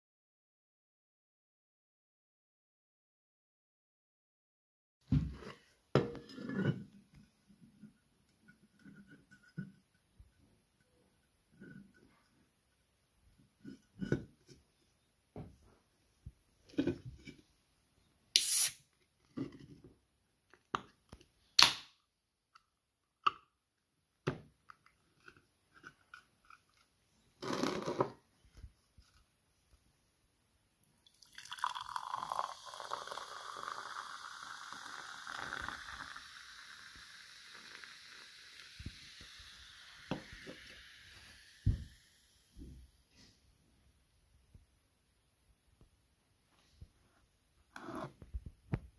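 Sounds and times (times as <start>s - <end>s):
short hisses: 18.4s - 18.8s
soda pouring into glass: 31.0s - 42.4s
fizz of bubbles: 31.1s - 42.4s.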